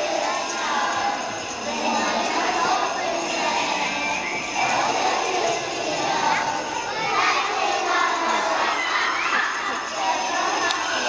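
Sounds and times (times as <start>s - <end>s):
children singing: 0.0s - 11.0s
jingle bells shaking: 0.0s - 11.0s.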